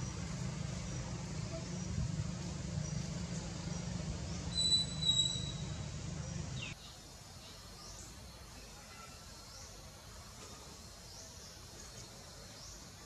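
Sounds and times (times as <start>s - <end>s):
short high chirps: 4.5s - 5.8s.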